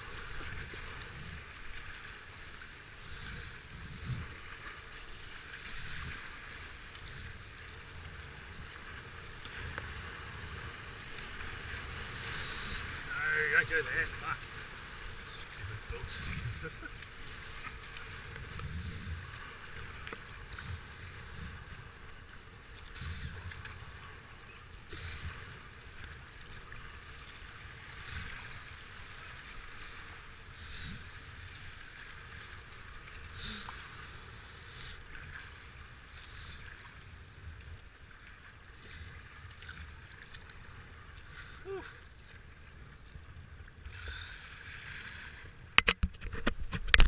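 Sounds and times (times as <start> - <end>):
paddle splashes: 0.0 - 47.0
rushing whitewater: 7.6 - 18.5.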